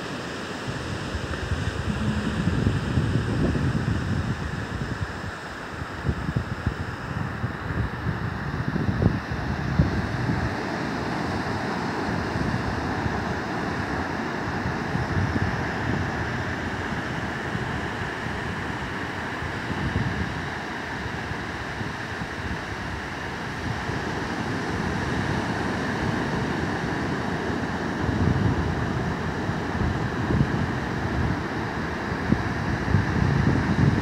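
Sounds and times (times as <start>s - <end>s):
ocean surf breaking on beach: 0.0s - 34.0s
wind buffeting microphone: 0.7s - 34.0s.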